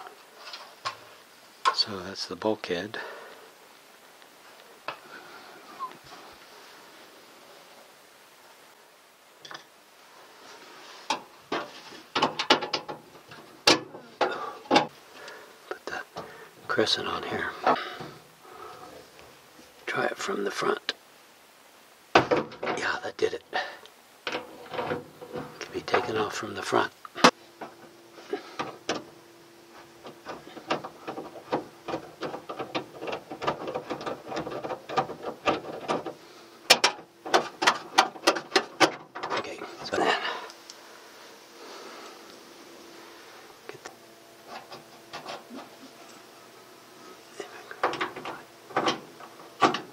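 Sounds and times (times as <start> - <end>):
faint steady hum: 0.0 - 49.9
tools clicking and clanking on metal: 11.1 - 14.9, 24.3 - 26.2, 30.0 - 36.1, 36.7 - 39.9, 47.7 - 49.9.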